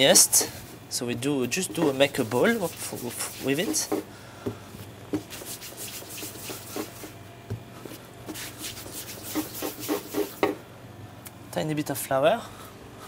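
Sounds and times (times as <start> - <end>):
hands rubbing dough: 1.5 - 4.1, 5.1 - 7.2, 7.9 - 10.6.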